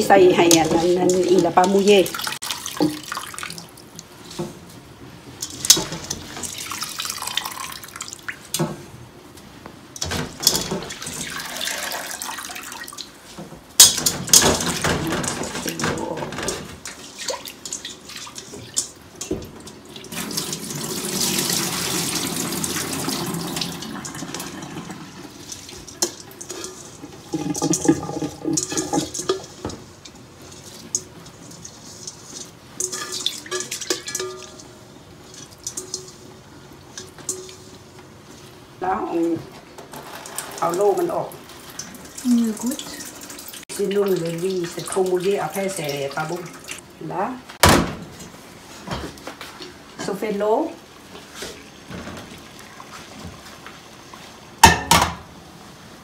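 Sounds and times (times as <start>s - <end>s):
water sloshing and dripping: 0.0s - 4.6s, 5.2s - 8.8s, 9.9s - 38.6s, 39.9s - 46.9s
metal bowl knocks: 32.8s - 34.6s.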